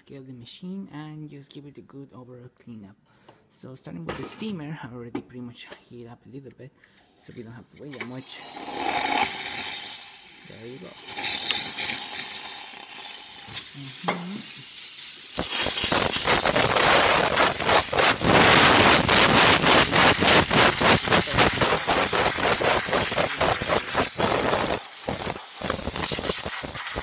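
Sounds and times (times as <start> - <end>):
steam wand hissing: 8.2 - 27.0.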